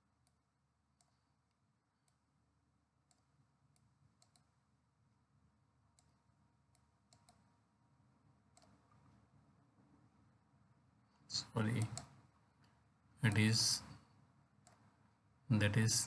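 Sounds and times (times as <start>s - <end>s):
mouse button clicks: 11.7s - 12.1s.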